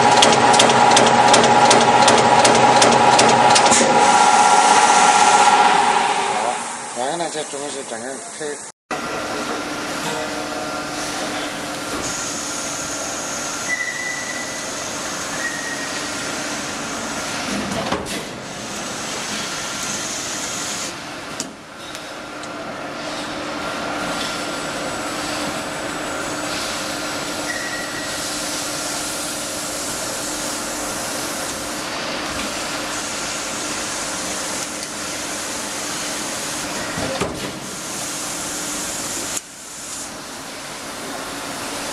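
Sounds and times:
punch press mechanical noise: 0:00.0 - 0:06.6
steady hum: 0:01.1 - 0:08.3.

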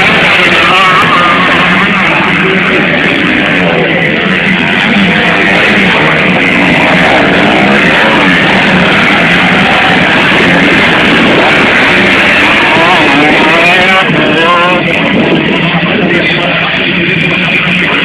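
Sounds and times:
dirt bikes revving past: 0:04.5 - 0:15.9.

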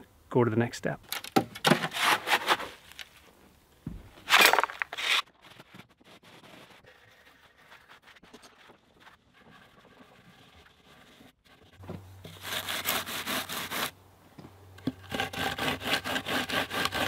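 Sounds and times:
shovel scraping concrete: 0:01.7 - 0:02.8, 0:04.2 - 0:05.8.

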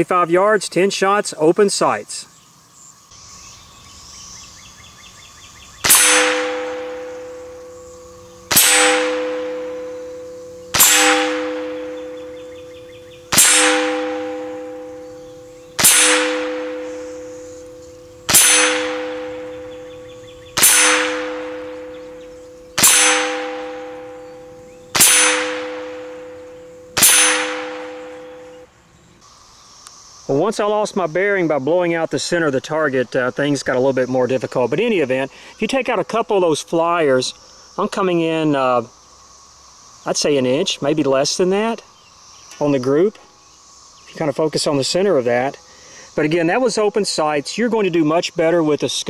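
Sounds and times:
rifle shots: 0:05.8 - 0:07.6, 0:08.5 - 0:10.0, 0:10.7 - 0:12.3, 0:13.3 - 0:15.0, 0:15.8 - 0:17.3, 0:18.3 - 0:19.6, 0:20.6 - 0:22.0, 0:22.8 - 0:24.1, 0:25.0 - 0:26.2, 0:27.0 - 0:28.4
steel target ringing: 0:05.8 - 0:28.7.

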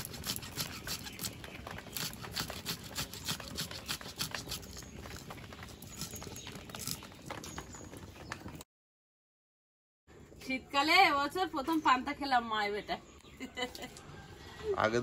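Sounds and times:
knife crunching through cabbage: 0:00.0 - 0:07.1.

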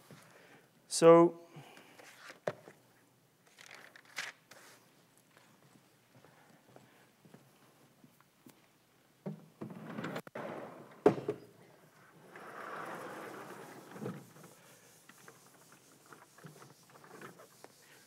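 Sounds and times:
blackboard panels scraping: 0:12.0 - 0:18.0
felt eraser wiping chalk: 0:13.1 - 0:18.0.

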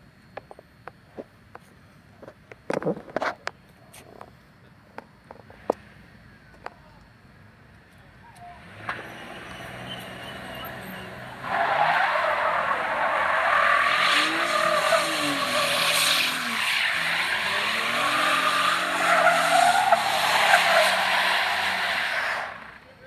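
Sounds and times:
tyres squealing: 0:08.5 - 0:22.8
car engine revving: 0:08.6 - 0:22.8.

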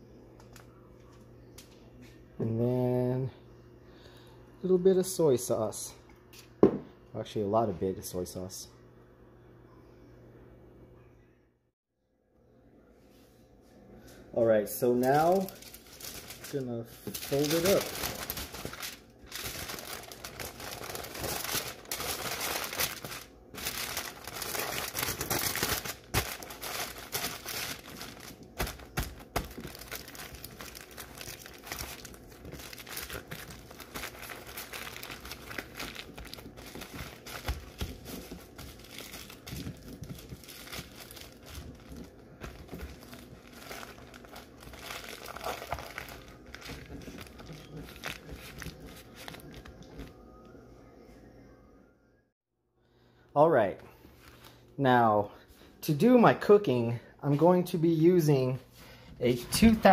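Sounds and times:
aluminum foil crinkling: 0:14.8 - 0:50.2.

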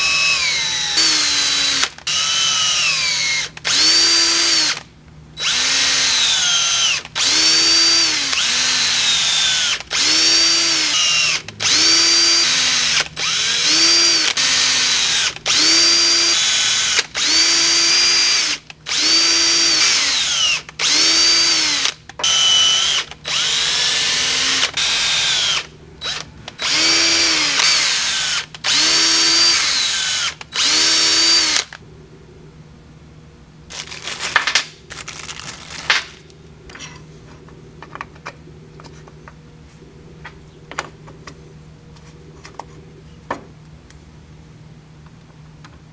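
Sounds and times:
cordless drill drilling: 0:00.0 - 0:31.8
plastic bag crinkling: 0:33.7 - 0:36.3.

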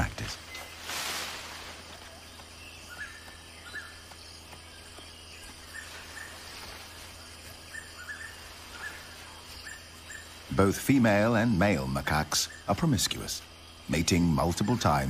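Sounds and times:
light hiss: 0:00.0 - 0:02.4
low hum: 0:00.0 - 0:15.0.

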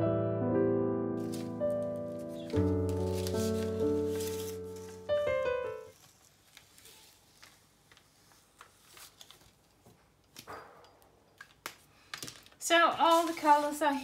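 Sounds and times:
background music chord: 0:00.0 - 0:05.9
paper rustling: 0:01.2 - 0:10.4, 0:11.4 - 0:14.0.

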